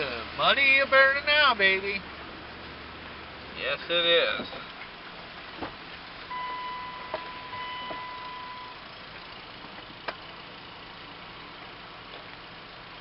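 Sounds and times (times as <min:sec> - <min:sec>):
tires rolling over gravel: 0:00.0 - 0:13.0
truck engine running: 0:00.0 - 0:13.0
steady high tone: 0:06.3 - 0:08.8.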